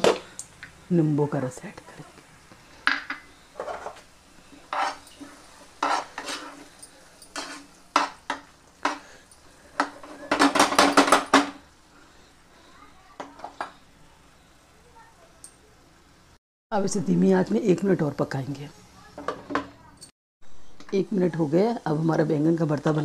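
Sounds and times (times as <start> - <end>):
spatula scraping a frying pan: 3.2 - 10.8.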